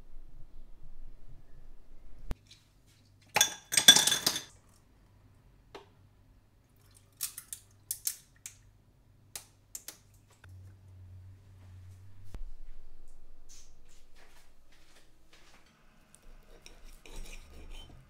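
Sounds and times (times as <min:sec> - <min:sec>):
ice cubes clinking in glass: 0:03.4 - 0:04.5.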